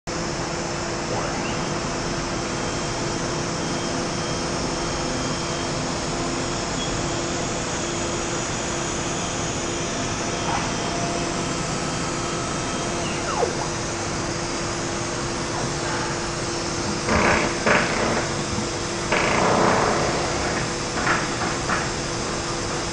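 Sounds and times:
cnc router whirring: 0:00.2 - 0:22.9
faint brief whines: 0:01.1 - 0:02.2, 0:12.8 - 0:14.2.

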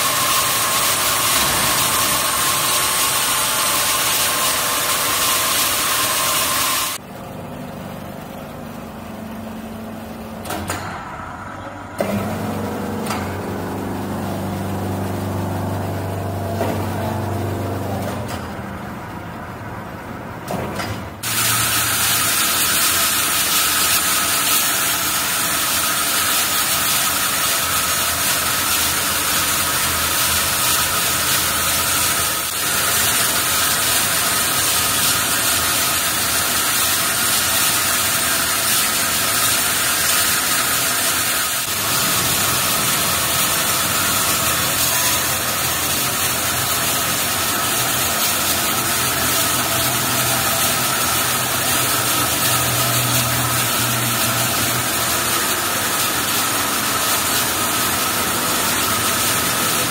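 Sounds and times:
band saw cutting timber: 0:00.0 - 0:07.0, 0:21.2 - 0:59.9.

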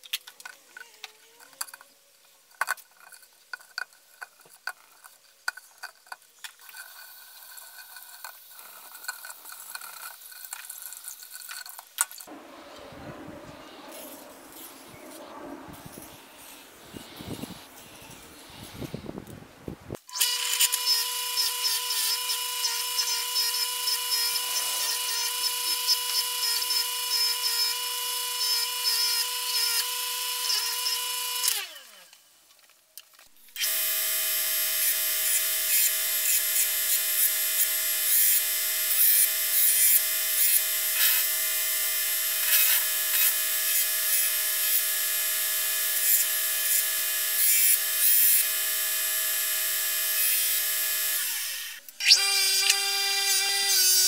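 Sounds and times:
belt grinder whining: 0:20.0 - 0:32.2, 0:33.5 - 0:54.0
bench grinder whining: 0:20.1 - 0:32.1, 0:33.5 - 0:54.0.

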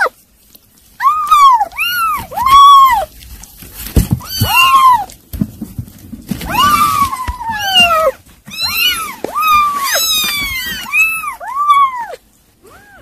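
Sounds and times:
kittens mewing: 0:01.0 - 0:03.2, 0:04.1 - 0:05.2, 0:06.4 - 0:13.0.

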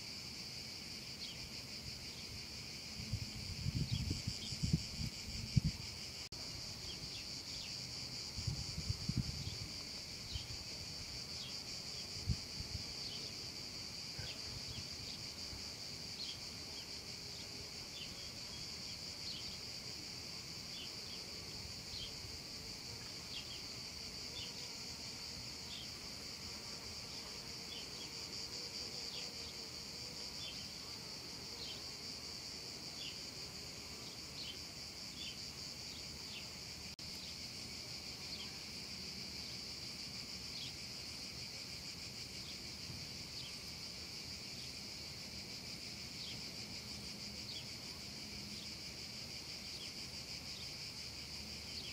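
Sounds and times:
cicadas singing: 0:00.0 - 0:51.9.

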